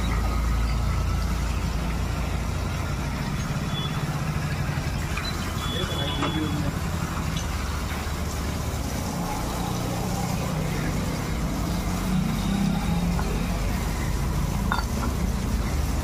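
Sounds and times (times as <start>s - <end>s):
hose spraying water on metal: 0.0s - 16.0s
water splashing on concrete: 0.0s - 16.0s.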